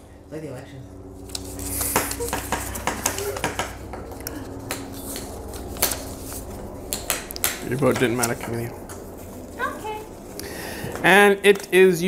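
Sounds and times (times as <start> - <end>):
paper crinkling: 1.2 - 10.4.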